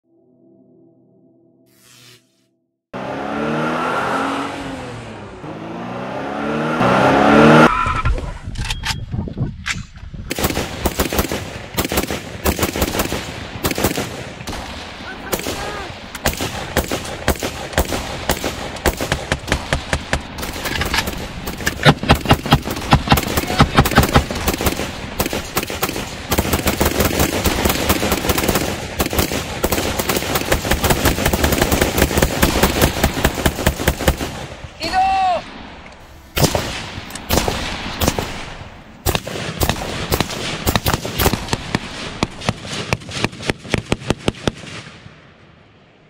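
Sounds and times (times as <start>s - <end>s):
rifle gunfire: 10.3s - 34.6s, 36.4s - 45.1s.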